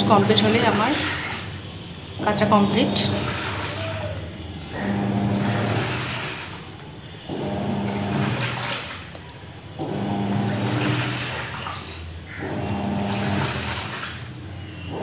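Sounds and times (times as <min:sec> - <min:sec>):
washing machine motor humming: 0:00.0 - 0:15.0
water churning in drum: 0:00.0 - 0:15.0.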